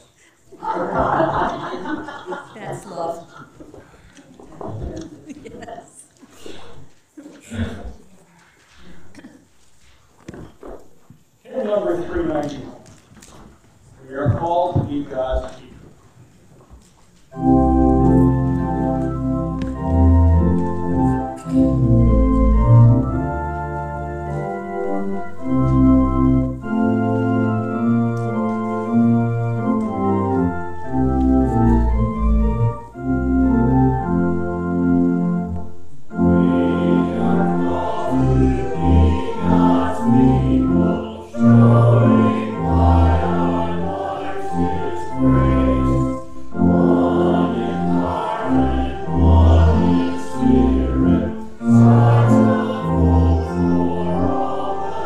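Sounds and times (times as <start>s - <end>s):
voices singing a hymn: 0.6s - 3.5s, 17.3s - 35.4s, 36.1s - 55.0s
church organ chords: 17.3s - 55.0s.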